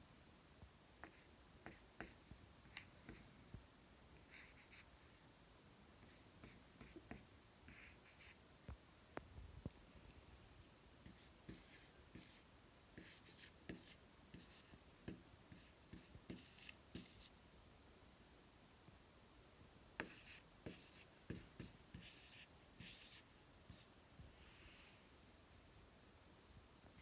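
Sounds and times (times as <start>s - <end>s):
marker scratching on whiteboard: 1.0s - 3.3s, 4.2s - 5.0s, 6.0s - 8.4s, 11.0s - 17.3s, 20.0s - 23.9s.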